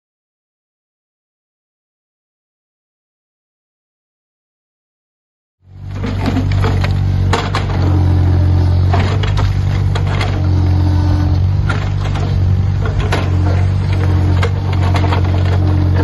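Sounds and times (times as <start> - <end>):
excavator diesel engine running: 5.6 - 16.0
high whine: 5.7 - 16.0.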